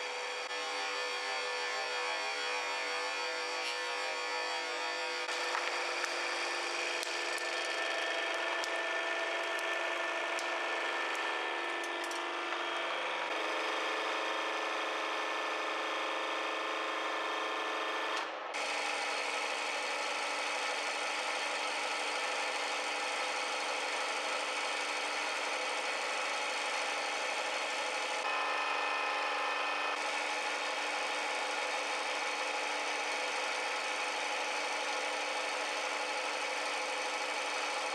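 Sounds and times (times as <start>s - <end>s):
hydraulic press whirring and hissing: 0.0s - 16.0s.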